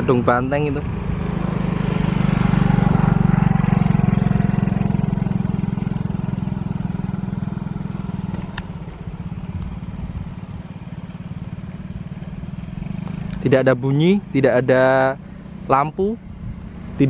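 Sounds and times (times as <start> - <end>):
engine throbbing: 0.0 - 17.0
sharp click: 8.3 - 8.8.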